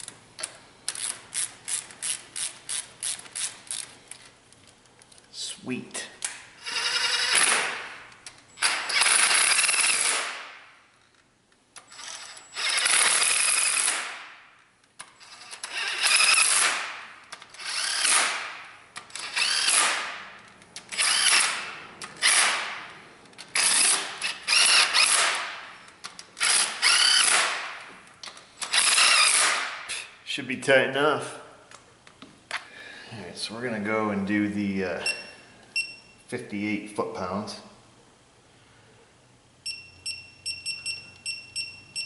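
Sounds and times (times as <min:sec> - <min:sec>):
cordless power tool whirring: 0:06.6 - 0:07.8, 0:15.2 - 0:16.9, 0:17.5 - 0:18.5, 0:19.1 - 0:20.1, 0:20.9 - 0:21.6, 0:23.6 - 0:25.5, 0:26.4 - 0:27.7, 0:28.7 - 0:29.7.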